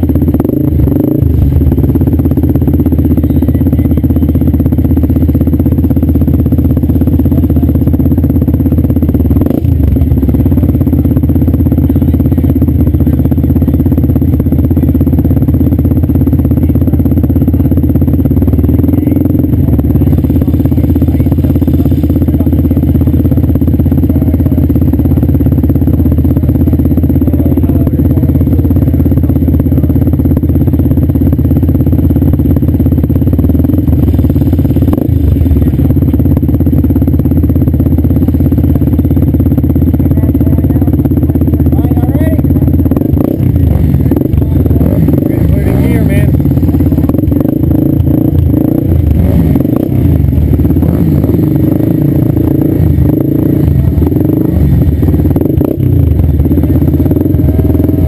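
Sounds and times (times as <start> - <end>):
quad engine idling: 0.0 - 58.0.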